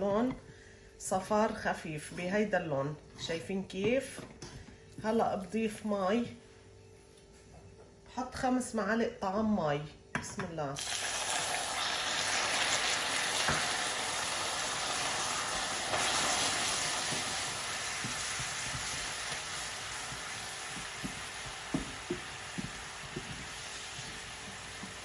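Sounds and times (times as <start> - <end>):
caramel sizzling and bubbling: 10.8 - 25.0.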